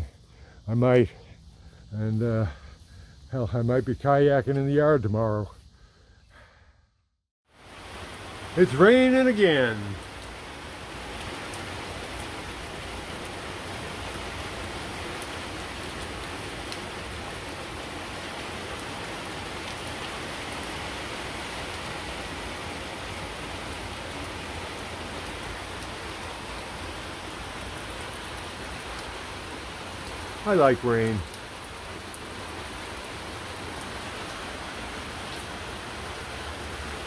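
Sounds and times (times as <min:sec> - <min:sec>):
steady rain falling: 0:07.5 - 0:37.0.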